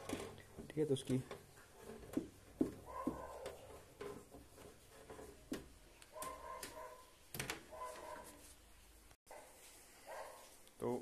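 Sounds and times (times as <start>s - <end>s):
sharp knocks and clicks: 0.0s - 7.7s.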